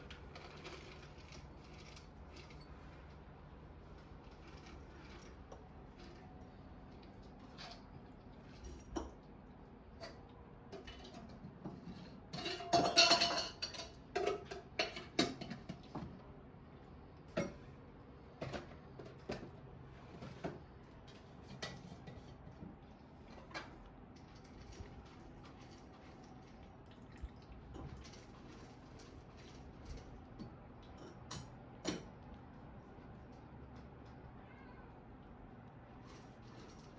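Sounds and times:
light knocks and clinks: 0:27.2 - 0:32.3.

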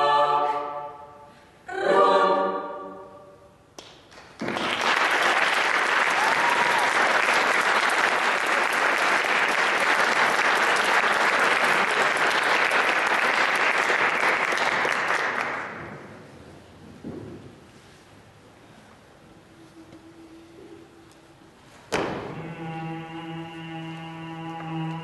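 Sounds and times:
audience applauding: 0:04.1 - 0:15.8.

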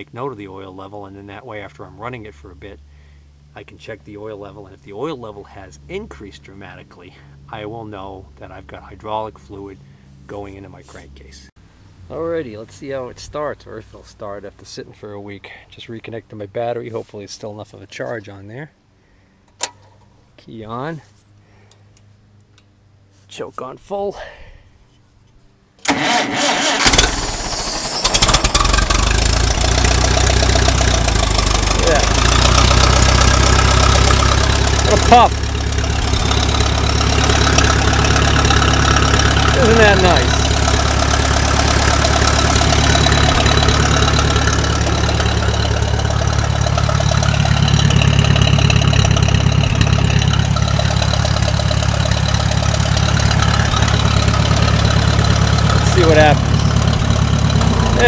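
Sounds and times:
starter cranking: 0:25.8 - 0:58.0
tractor engine running: 0:25.8 - 0:58.0.

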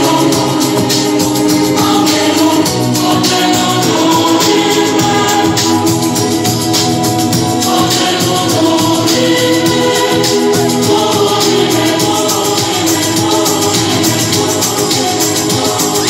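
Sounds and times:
quick percussion beat: 0:00.0 - 0:16.0
upbeat music with voices singing: 0:00.0 - 0:16.0.

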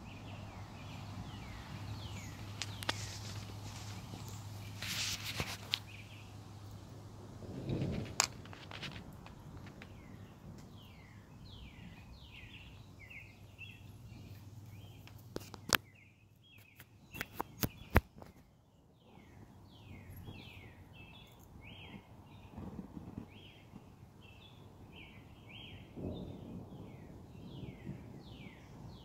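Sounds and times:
songbird calling: 0:00.0 - 0:06.3, 0:09.4 - 0:22.5
sharp clicks: 0:16.6 - 0:18.3.

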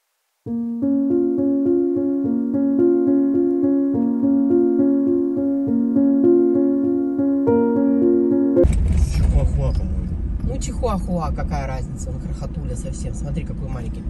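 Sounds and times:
keyboard notes: 0:00.5 - 0:08.7.

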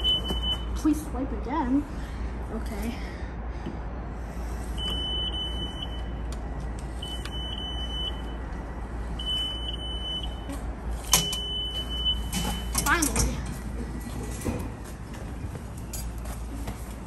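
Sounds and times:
electronic alarm beeping: 0:00.0 - 0:00.8, 0:04.8 - 0:06.2, 0:07.0 - 0:13.0
steady low rumble: 0:00.0 - 0:17.0.

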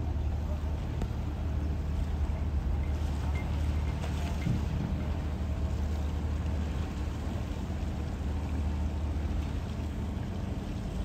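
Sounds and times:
boat engine hum: 0:00.0 - 0:11.0.

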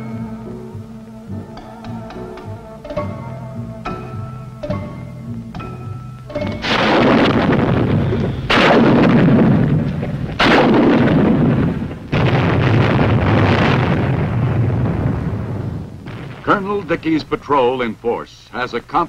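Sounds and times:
heavy explosions with rumble: 0:06.5 - 0:17.4.

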